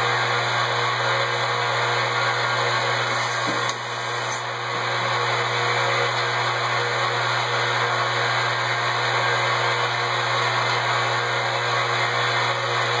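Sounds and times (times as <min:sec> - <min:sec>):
whir of fans and air: 0:00.0 - 0:13.0.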